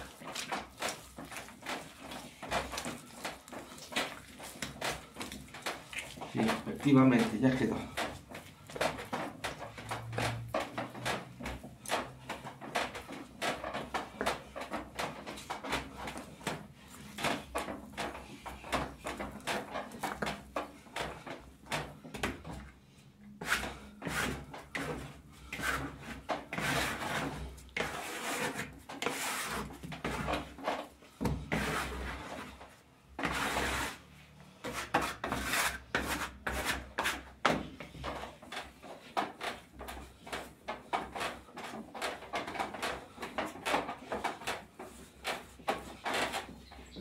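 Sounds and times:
hands kneading dough: 0.0s - 47.0s.

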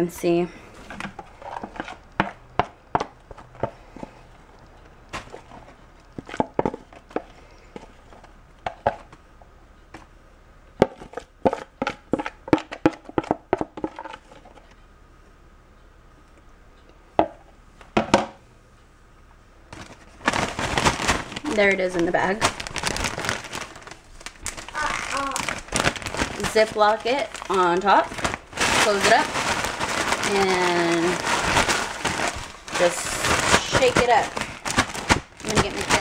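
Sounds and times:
cereal clicking into plastic bag: 19.8s - 36.0s.

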